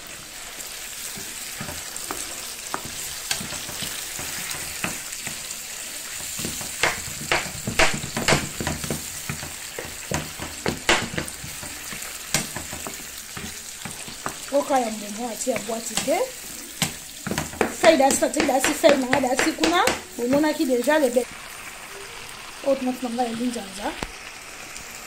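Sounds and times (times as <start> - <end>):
wooden spatula scraping a pan: 0.0 - 21.3
tomato sauce sizzling in a pan: 0.0 - 25.0.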